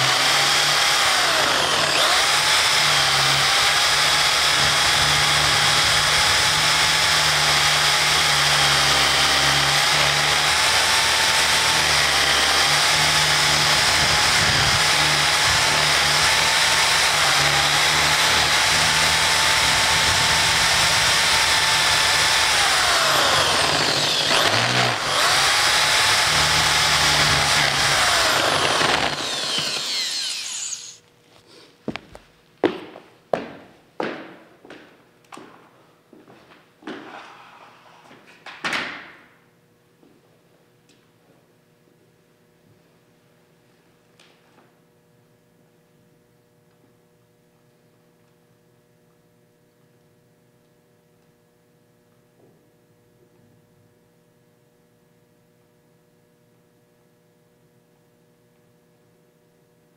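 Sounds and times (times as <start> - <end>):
electric drill boring through paper: 0.0 - 31.0.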